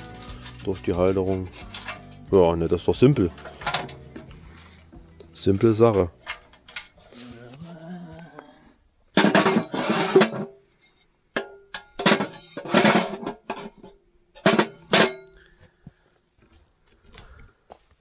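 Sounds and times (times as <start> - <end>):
strummed guitar: 0.0 - 6.7.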